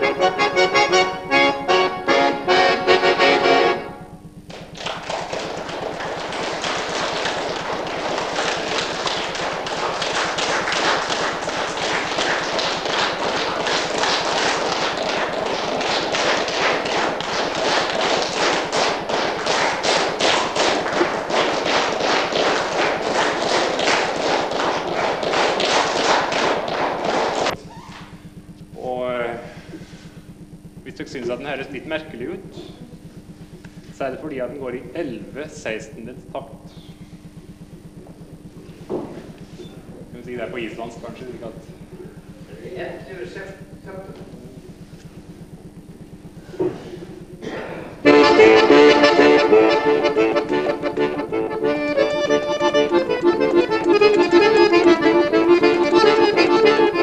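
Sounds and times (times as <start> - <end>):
accordion music: 0.0 - 4.3, 6.9 - 27.6, 48.0 - 57.0
audience applause: 4.5 - 27.6.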